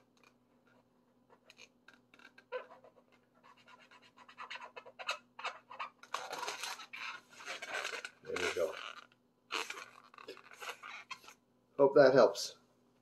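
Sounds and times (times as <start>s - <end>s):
marker scratching on balloon: 0.0s - 11.4s.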